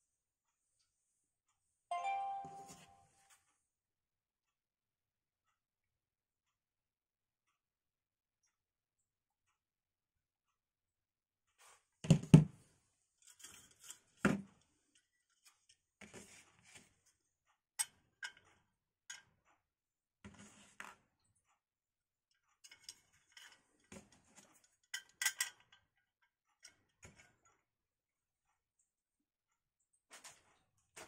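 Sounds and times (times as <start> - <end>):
knock: 12.0 - 12.5.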